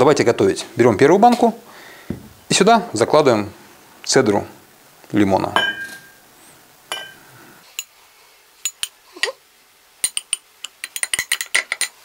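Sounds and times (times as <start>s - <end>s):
metal teaspoon clinking on glass: 5.6s - 6.2s, 6.9s - 7.2s, 8.6s - 9.0s, 10.0s - 12.0s.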